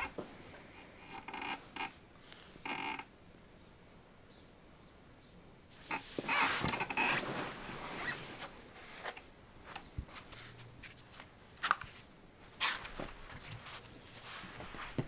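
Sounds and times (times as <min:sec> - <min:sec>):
soft knocks and footsteps: 0:00.0 - 0:00.7, 0:09.6 - 0:12.0, 0:12.8 - 0:15.0
cloth rustling: 0:05.7 - 0:15.0.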